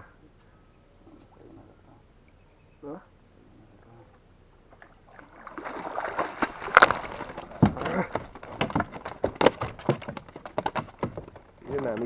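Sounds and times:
fish splashing at water surface: 4.8 - 8.4
fish flopping against wooden canoe: 4.8 - 12.0
sharp knocks: 6.8 - 11.4.

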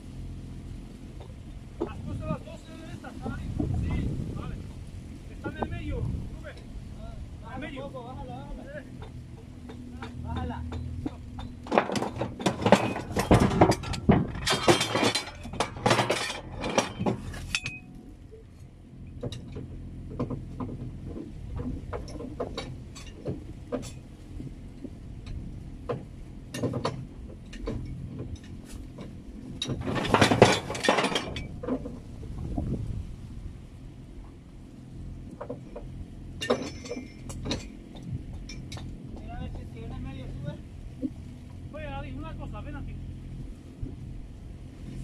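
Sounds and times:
metal hardware clattering: 8.9 - 18.1, 19.1 - 24.0, 25.3 - 32.0, 35.4 - 40.4.

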